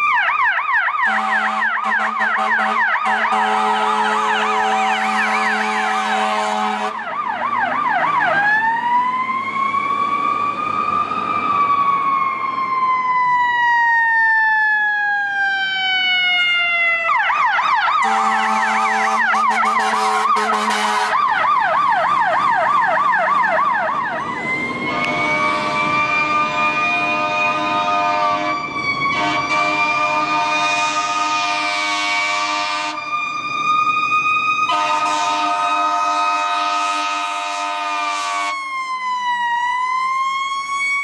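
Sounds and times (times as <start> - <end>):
electronic siren yelping and wailing: 0.0 - 41.0
second siren winding up: 0.3 - 27.0
air horn blasts: 1.0 - 7.0, 18.0 - 21.2, 24.9 - 33.0, 34.7 - 38.6.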